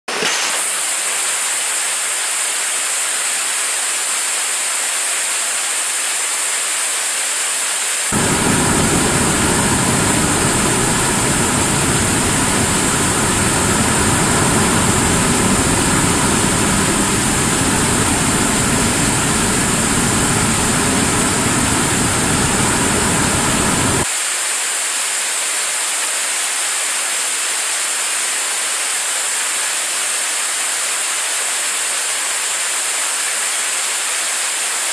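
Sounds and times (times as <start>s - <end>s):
deep rumble: 8.1s - 24.0s
rocket engine roaring: 8.1s - 24.1s.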